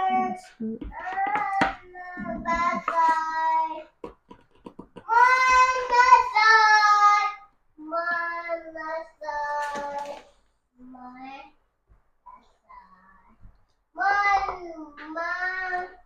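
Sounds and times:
child singing held notes: 0:00.0 - 0:03.9, 0:05.0 - 0:11.5, 0:14.0 - 0:16.0.

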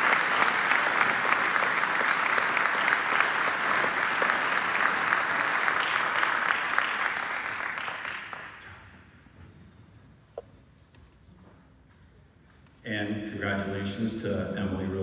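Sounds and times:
audience applauding: 0:00.0 - 0:08.7.

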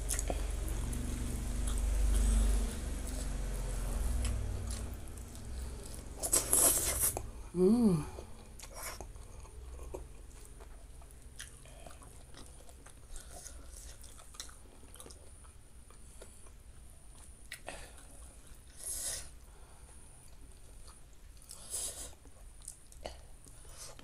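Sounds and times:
chewing and crunching food: 0:00.0 - 0:07.3, 0:08.0 - 0:24.0
person humming mm: 0:06.3 - 0:08.3.

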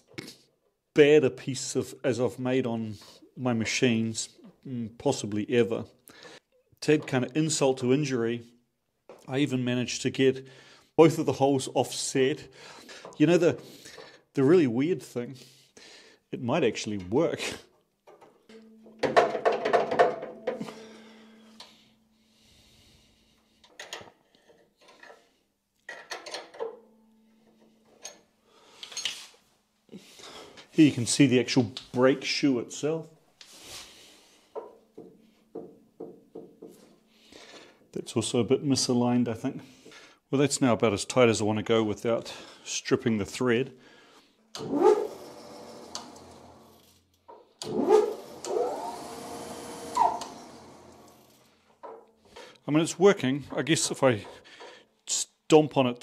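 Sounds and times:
tools clinking on metal bolt: 0:25.9 - 0:28.2
lathe spindle whining: 0:44.6 - 0:46.9, 0:47.6 - 0:51.5.

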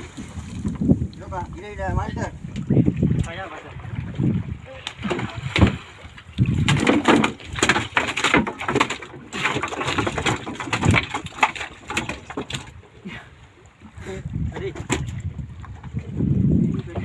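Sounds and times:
fish thrashing on a wooden boat: 0:04.5 - 0:17.0.

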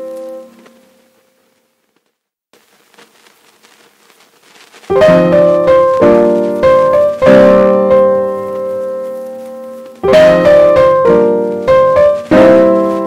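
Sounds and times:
piano chords: 0:00.0 - 0:01.2, 0:04.9 - 0:13.0.

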